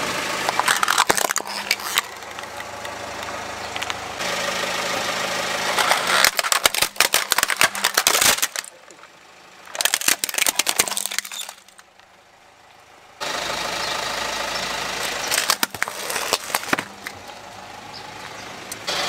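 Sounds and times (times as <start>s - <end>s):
car engine running: 0.0s - 19.0s
plastic toy cracking under tyre: 0.4s - 2.7s, 5.7s - 8.8s, 9.7s - 12.0s, 15.0s - 17.2s.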